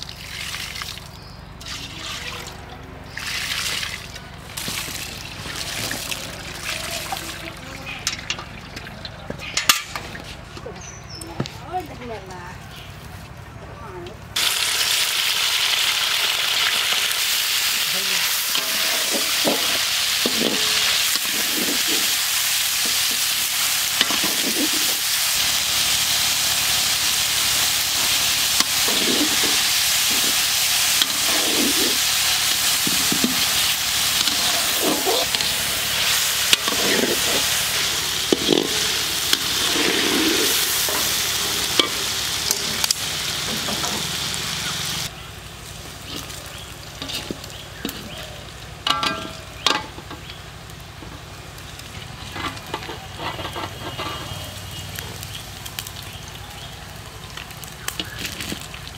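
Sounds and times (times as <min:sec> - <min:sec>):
chicken sizzling in hot oil: 0:14.4 - 0:58.9
metal spatula scraping pan: 0:18.5 - 0:22.2, 0:22.8 - 0:25.2, 0:28.0 - 0:44.1, 0:47.0 - 0:48.2, 0:52.2 - 0:54.6.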